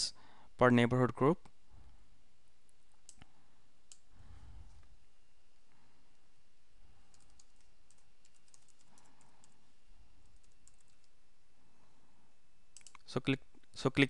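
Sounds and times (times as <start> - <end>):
computer keyboard typing: 7.1 - 9.6, 10.2 - 11.2, 12.8 - 13.0.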